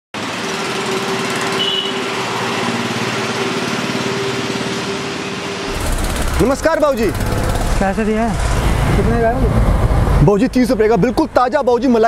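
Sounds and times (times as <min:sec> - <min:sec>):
small engine running: 0:05.7 - 0:09.8.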